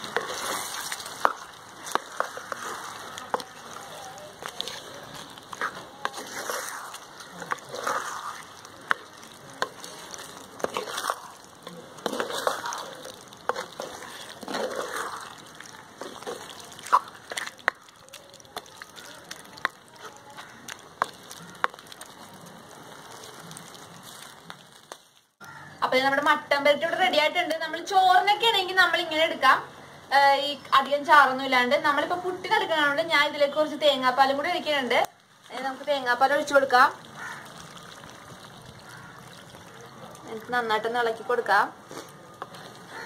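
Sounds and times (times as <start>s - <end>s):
wooden spatula scraping clay pot: 0.0s - 25.1s.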